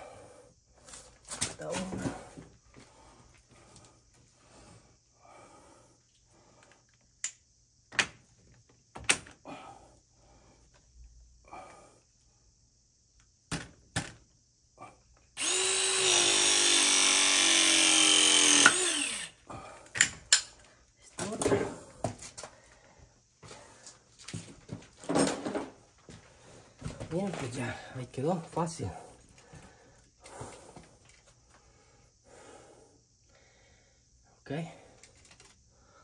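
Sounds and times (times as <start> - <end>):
power drill whine: 15.4 - 19.4.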